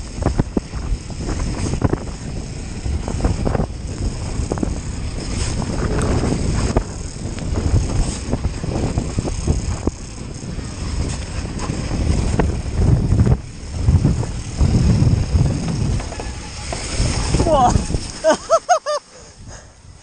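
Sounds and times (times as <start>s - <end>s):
tyres running on snow: 0.0s - 19.7s
wind buffeting microphone: 0.0s - 20.0s
bike clicks and knocks: 3.9s - 17.3s.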